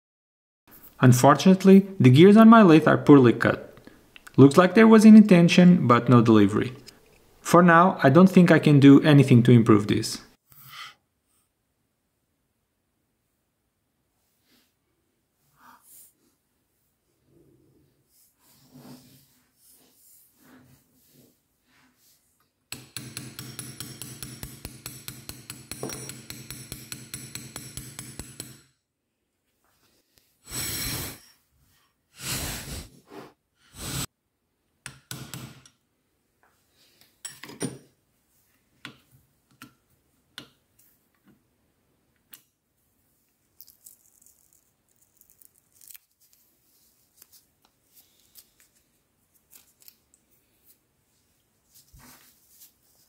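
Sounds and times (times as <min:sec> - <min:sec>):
metal parts clinking and tapping: 0:22.8 - 0:28.7.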